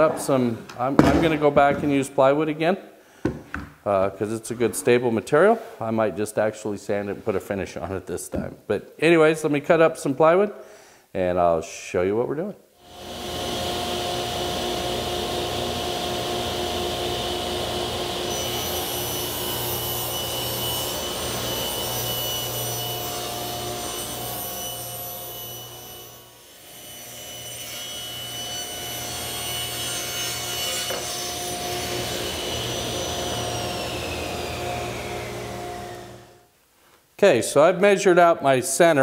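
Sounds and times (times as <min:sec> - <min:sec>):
table saw cutting plywood: 0:12.8 - 0:36.4.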